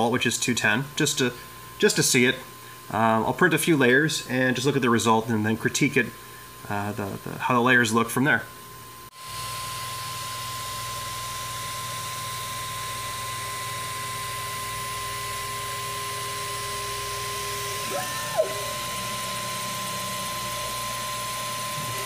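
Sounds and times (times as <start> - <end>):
printer high whine and low hum: 9.2 - 22.0
rising and falling motor whine: 12.2 - 22.0
stepper motor humming: 12.7 - 22.0.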